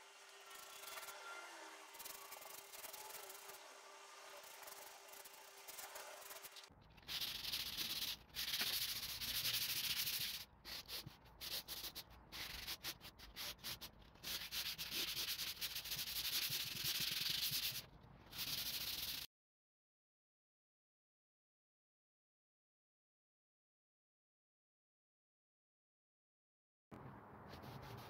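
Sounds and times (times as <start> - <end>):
sandpaper rubbing on wood: 1.9 - 3.6, 4.2 - 19.3, 27.5 - 28.0.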